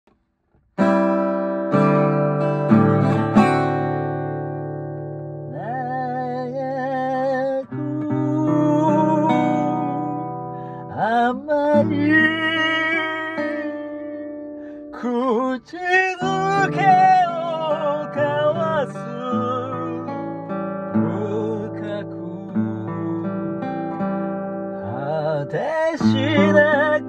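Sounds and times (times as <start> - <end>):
acoustic guitar chords: 0.1 - 27.0
wordless singing with vibrato: 5.5 - 14.2, 15.0 - 20.4, 24.8 - 27.0.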